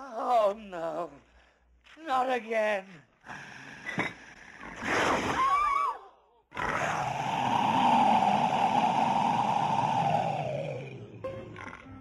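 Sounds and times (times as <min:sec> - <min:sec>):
monster roar with screech: 0:06.6 - 0:11.2.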